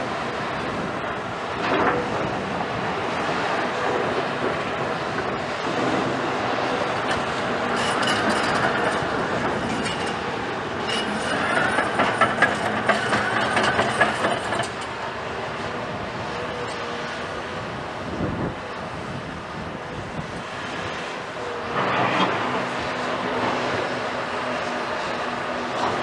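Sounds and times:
excavator diesel engine under load: 0:00.0 - 0:26.0
clanking and clattering in rubble: 0:07.0 - 0:15.0
metal squealing: 0:10.8 - 0:14.0.

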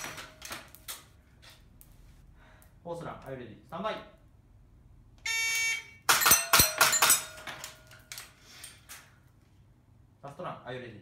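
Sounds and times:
pellets clanking on steel plates: 0:06.1 - 0:08.8.

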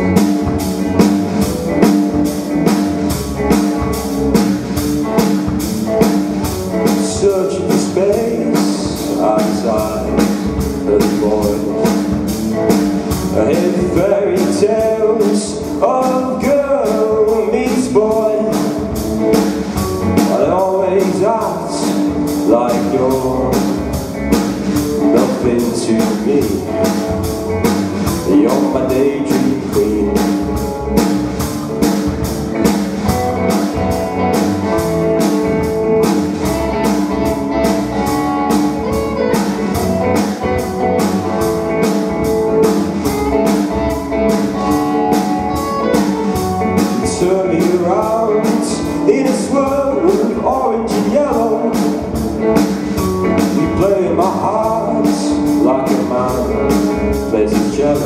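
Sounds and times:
bass guitar: 0:00.0 - 0:58.0
drum kit steady beat: 0:00.0 - 0:58.0
electric guitars: 0:00.0 - 0:58.0
man singing: 0:06.8 - 0:19.3, 0:20.0 - 0:31.0, 0:43.4 - 0:58.0.

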